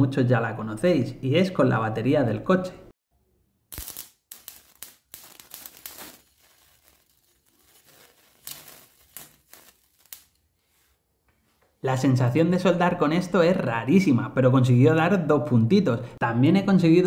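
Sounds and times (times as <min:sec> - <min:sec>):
electric arc crackling: 0:03.7 - 0:10.4.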